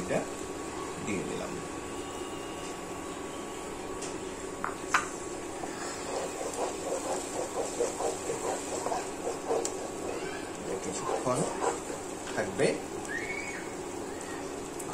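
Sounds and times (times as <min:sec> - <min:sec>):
induction cooktop hum: 0:00.0 - 0:14.9
wooden spatula scraping a pot: 0:05.6 - 0:12.2.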